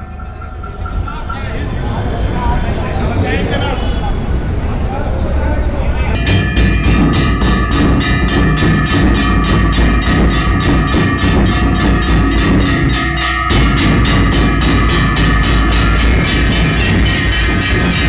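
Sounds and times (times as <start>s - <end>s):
kettle drums beaten with sticks: 0.0s - 1.6s, 6.2s - 18.0s.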